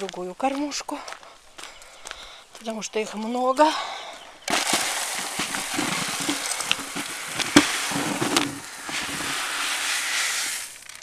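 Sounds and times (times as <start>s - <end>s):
grain pouring rattle: 4.5s - 11.0s.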